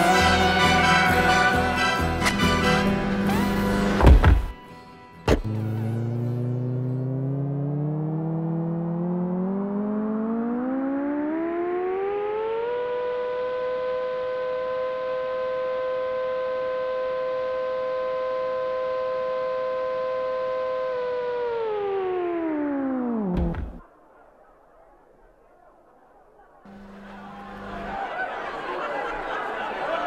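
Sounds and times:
siren wailing: 0:05.5 - 0:23.8, 0:26.7 - 0:28.4.

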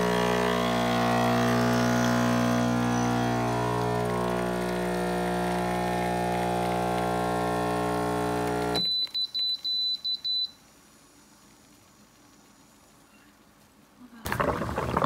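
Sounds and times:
espresso pump humming: 0:00.0 - 0:08.8
short high beeps: 0:08.8 - 0:10.6.

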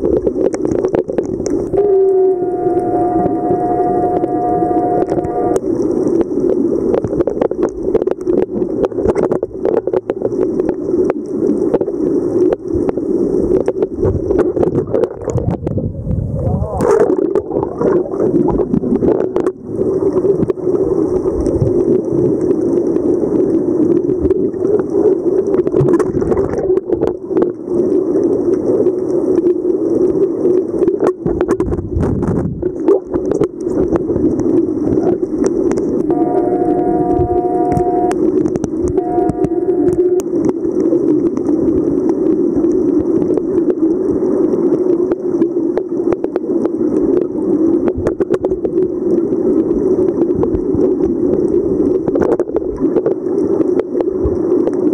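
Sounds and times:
muffled underwater rush: 0:00.0 - 0:54.9
sharp underwater clicks and knocks: 0:06.1 - 0:15.8, 0:30.8 - 0:36.1.

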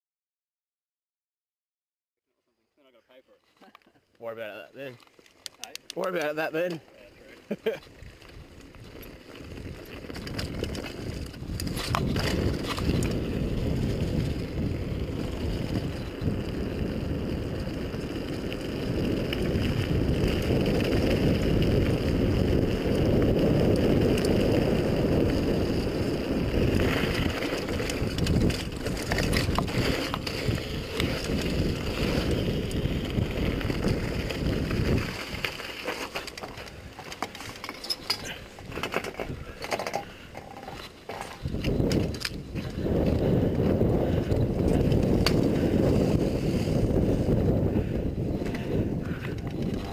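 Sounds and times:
bike tyres rolling on gravel: 0:04.2 - 0:49.9
wind rushing over microphone: 0:08.0 - 0:35.8, 0:38.0 - 0:49.9.

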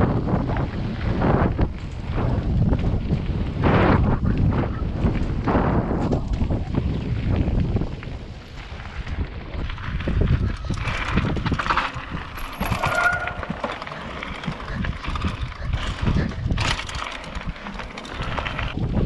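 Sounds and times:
bike rattling and clunking: 0:00.0 - 0:19.0
wind rumbling on microphone: 0:00.0 - 0:19.0
brief high squeal: 0:12.7 - 0:13.6.

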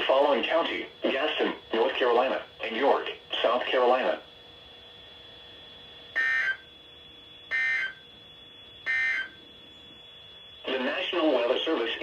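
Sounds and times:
buzzy digital data tones: 0:06.1 - 0:12.0.

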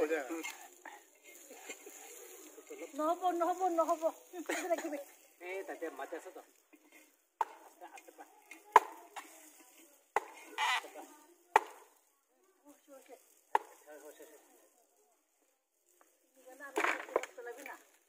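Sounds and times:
faint voices: 0:00.0 - 0:16.6
sharp chopping strokes: 0:10.2 - 0:10.8, 0:11.5 - 0:11.9.

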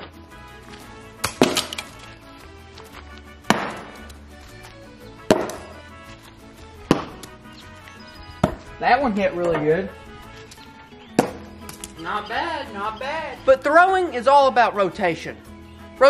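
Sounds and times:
background music: 0:00.0 - 0:16.0
blades striking wooden target: 0:01.2 - 0:02.0, 0:03.5 - 0:04.1, 0:05.3 - 0:05.8, 0:06.9 - 0:07.3, 0:08.4 - 0:08.7, 0:11.2 - 0:11.8.

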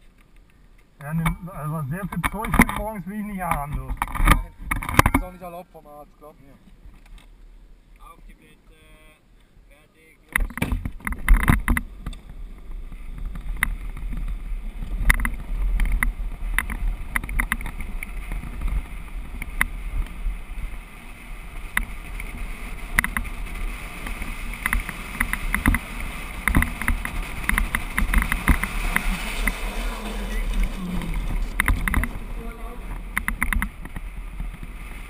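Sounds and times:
wheels rolling on asphalt: 0:00.0 - 0:08.0, 0:10.2 - 0:35.0.

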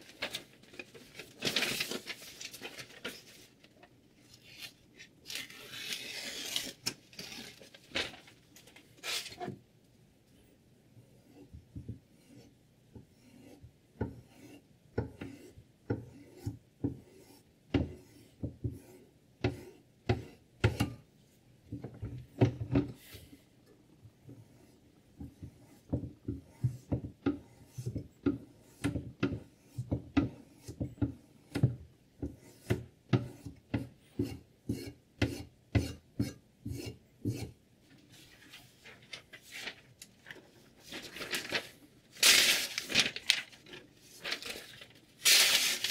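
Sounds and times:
paper rustling: 0:00.0 - 0:09.6, 0:37.9 - 0:45.9.

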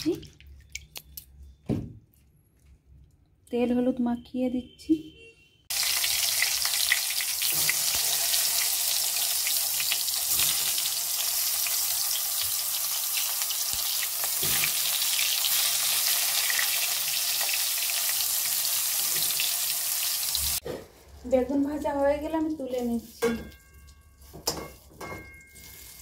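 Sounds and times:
vegetables frying in oil: 0:05.7 - 0:20.6.

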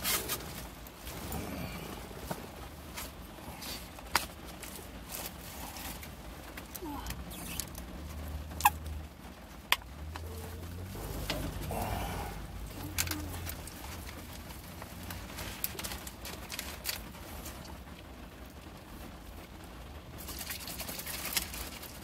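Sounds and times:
handling noises: 0:00.0 - 0:07.9, 0:09.7 - 0:17.8
low steady hum: 0:00.0 - 0:22.0.

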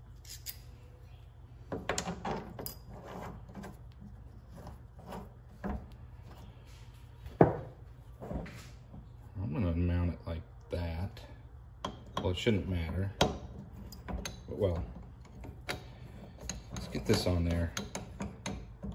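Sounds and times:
small metal parts clicking and scraping: 0:00.2 - 0:00.7.

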